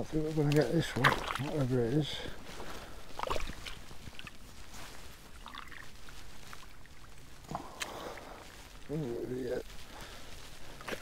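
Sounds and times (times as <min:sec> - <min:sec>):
muddy water sloshing: 0:00.0 - 0:08.4
splashes: 0:00.3 - 0:02.4, 0:03.1 - 0:04.4, 0:05.4 - 0:06.8.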